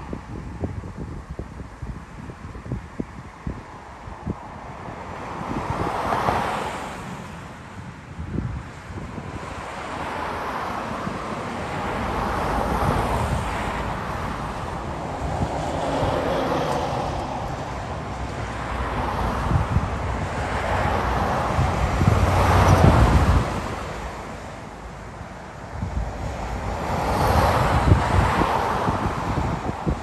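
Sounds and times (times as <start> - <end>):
wind buffeting microphone: 0.0 - 30.0
jet airliner roar overhead: 8.4 - 30.0.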